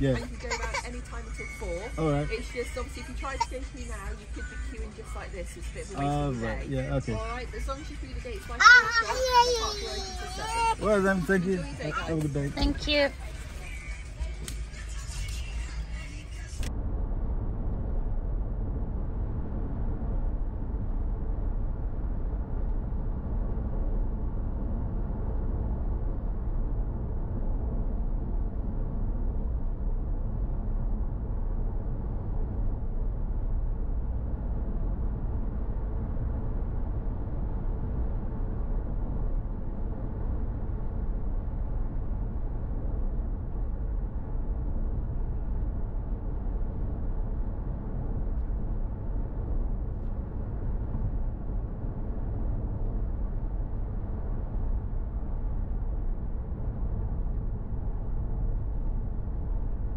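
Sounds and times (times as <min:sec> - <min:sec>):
car engine rumble inside cabin: 0:00.0 - 0:59.9.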